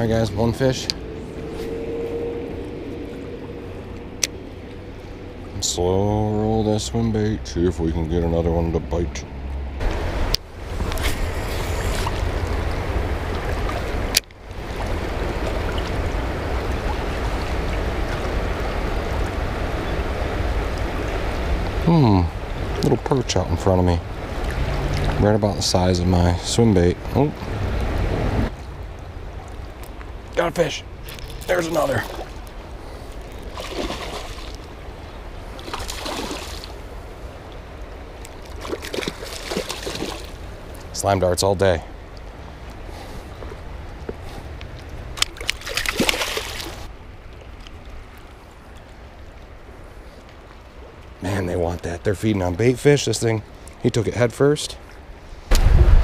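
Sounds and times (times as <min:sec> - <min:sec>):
low rumble: 0:00.0 - 0:06.6, 0:55.4 - 0:56.0
fish splashing at the surface: 0:33.4 - 0:34.6, 0:35.6 - 0:36.8, 0:38.4 - 0:40.4, 0:45.2 - 0:46.9.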